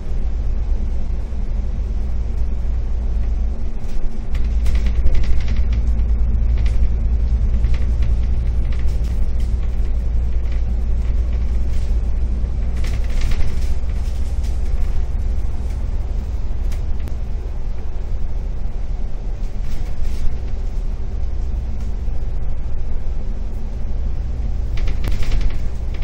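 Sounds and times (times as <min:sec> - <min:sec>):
diesel bus engine idling: 0:00.0 - 0:26.0.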